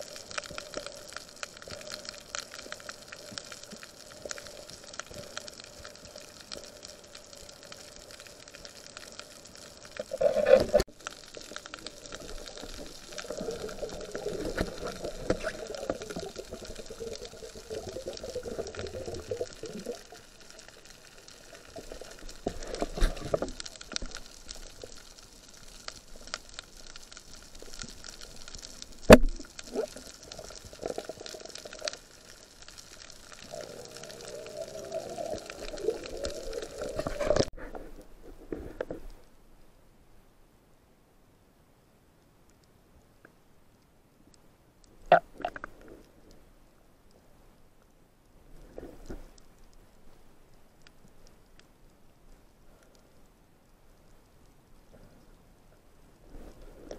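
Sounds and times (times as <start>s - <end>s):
water bubbling and gurgling: 0.0s - 37.6s, 45.1s - 45.8s
underwater crackle: 0.0s - 40.4s, 41.2s - 56.9s.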